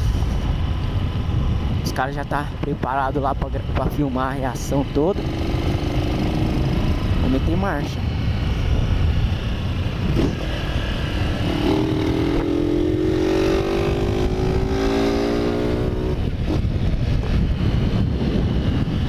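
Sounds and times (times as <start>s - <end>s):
wind and road rumble: 0.0s - 19.0s
motorcycle engine running: 4.8s - 19.0s.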